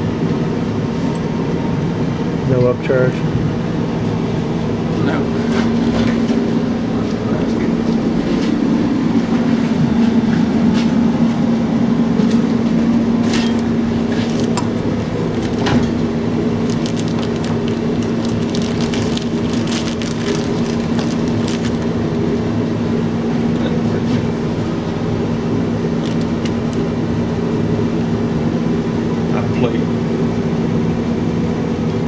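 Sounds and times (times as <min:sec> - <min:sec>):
steady machine hum: 0:00.0 - 0:32.0
plastic zip bag crinkling: 0:16.5 - 0:22.5, 0:26.0 - 0:26.7.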